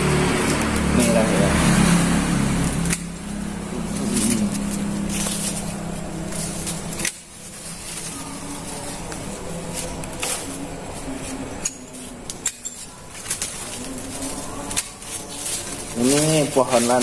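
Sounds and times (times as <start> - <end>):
dove cooing: 3.5 - 5.5.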